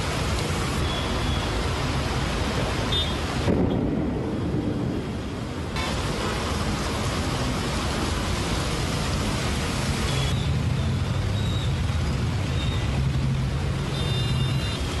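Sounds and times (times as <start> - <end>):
heavy rain and wind: 0.0 - 15.0
vehicle engines humming: 0.0 - 15.0.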